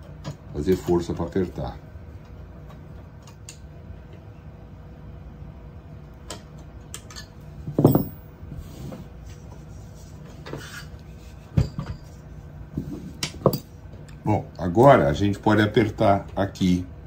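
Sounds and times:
metal screws and tools clinking: 6.9s - 8.2s.

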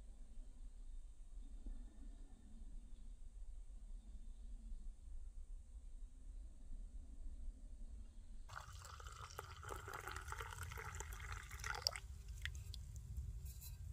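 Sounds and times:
coffee pouring into a mug: 8.5s - 12.8s.

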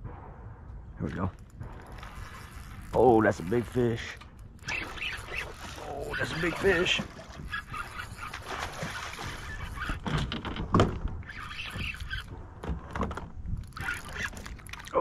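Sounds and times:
low rumble: 0.0s - 4.7s
knocks in a small boat: 8.5s - 13.6s.

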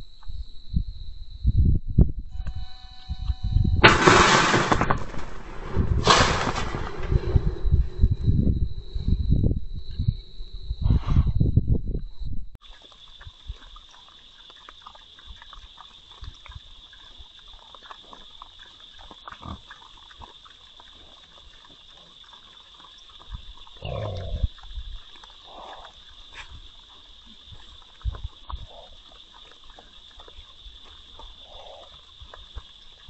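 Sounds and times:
hogs grunting: 13.2s - 33.0s.

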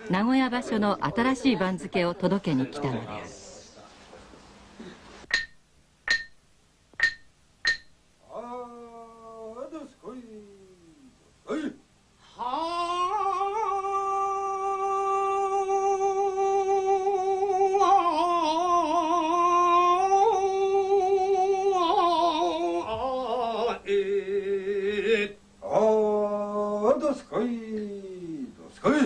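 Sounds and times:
person singing long held call: 12.4s - 26.8s.

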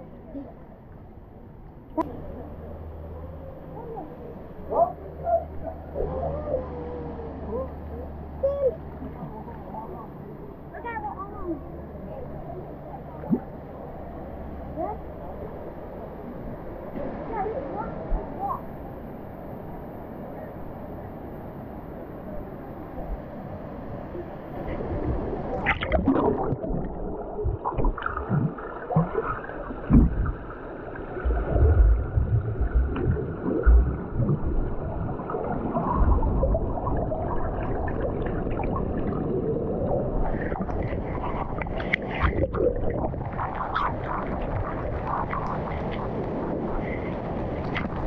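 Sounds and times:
water sloshing and gurgling: 0.0s - 19.2s, 24.4s - 48.0s
water splashing: 24.8s - 48.0s
low thumps: 29.9s - 30.4s, 31.2s - 34.8s.

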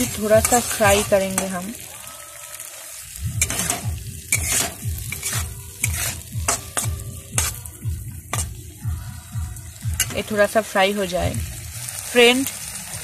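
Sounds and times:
spatula scraping metal pan: 0.0s - 1.7s, 3.4s - 7.6s
paste sizzling: 0.0s - 13.0s.

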